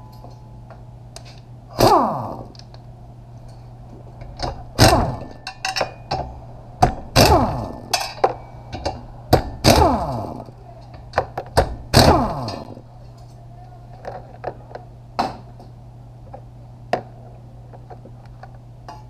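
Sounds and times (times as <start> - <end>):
pneumatic impact wrench bursts: 1.7 - 2.6, 4.8 - 5.4, 7.2 - 8.0, 9.6 - 10.5, 11.6 - 12.8.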